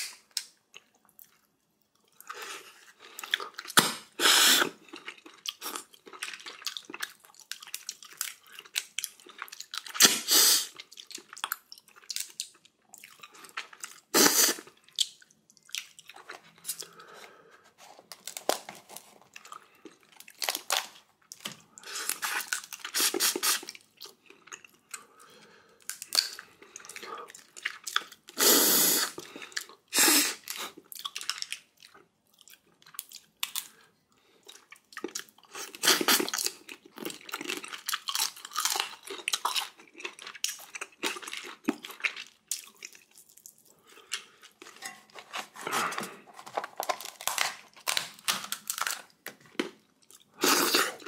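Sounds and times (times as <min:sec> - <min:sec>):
chewing and crunching: 0:00.0 - 0:03.8, 0:04.7 - 0:10.1, 0:10.7 - 0:28.4, 0:29.1 - 0:51.0
loud slurps: 0:50.4 - 0:51.0.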